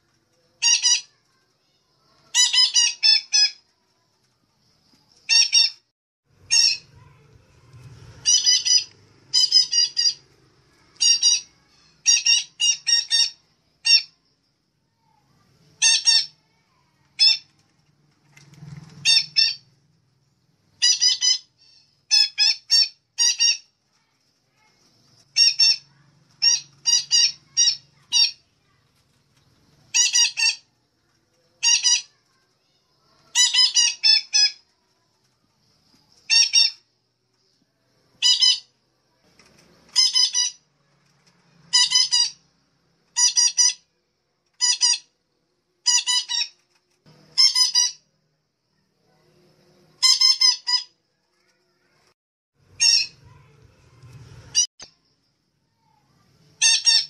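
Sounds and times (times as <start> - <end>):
parrot squawking: 0.6 - 1.2, 2.3 - 3.6, 6.5 - 7.2, 8.2 - 10.2, 10.9 - 14.2, 15.8 - 16.4, 19.0 - 19.7, 20.8 - 23.7, 25.3 - 28.4, 29.9 - 30.7, 31.6 - 32.2, 33.2 - 34.6, 36.3 - 36.8, 38.2 - 38.7, 39.9 - 40.6, 41.7 - 42.4, 43.1 - 43.9, 44.6 - 45.1, 45.8 - 46.6, 47.3 - 48.0, 50.0 - 51.0, 52.8 - 53.2, 56.6 - 57.0.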